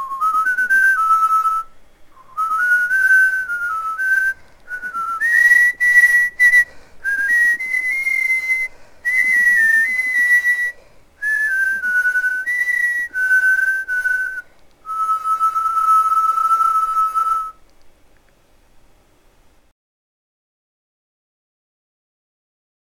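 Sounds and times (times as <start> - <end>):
person whistling melody: 0.0 - 17.6.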